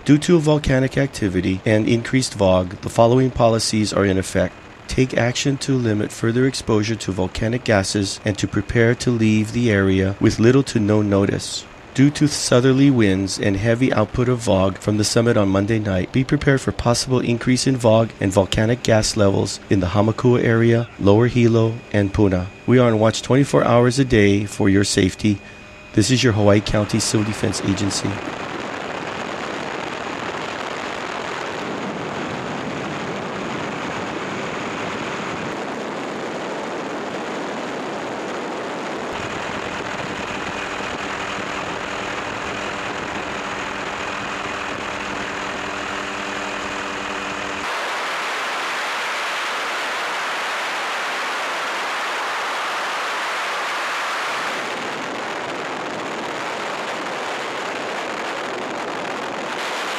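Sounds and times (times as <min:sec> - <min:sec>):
helicopter engine and rotor drone: 0:00.0 - 0:59.9
multi-note hum: 0:00.0 - 0:59.9
wind rush: 0:26.7 - 0:59.9.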